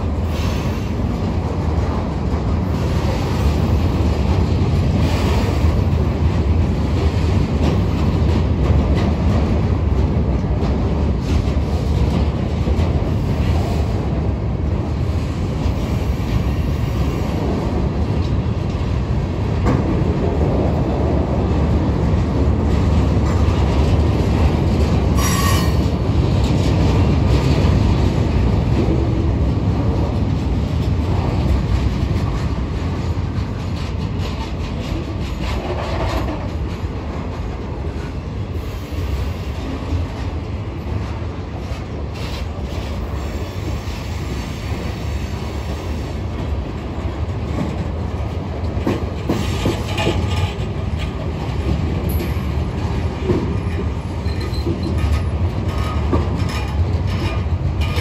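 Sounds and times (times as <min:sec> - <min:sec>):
freight train rumbling past: 0:00.0 - 0:58.0
wheels clacking over rail joints: 0:00.0 - 0:58.0
train wheel squeal: 0:25.1 - 0:26.0, 0:53.7 - 0:58.0.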